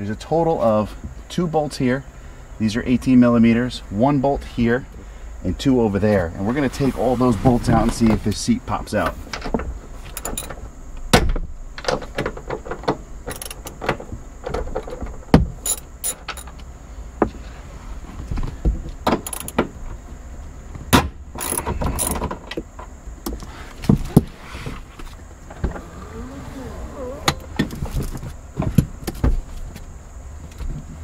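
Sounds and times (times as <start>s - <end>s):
ratchet clicking: 10.2s - 10.5s, 13.3s - 13.8s, 19.2s - 19.6s, 21.4s - 22.2s.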